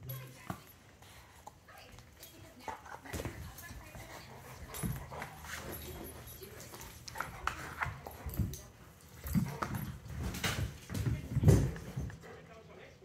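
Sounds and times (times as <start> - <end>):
dogs scuffling: 0.0 - 12.8.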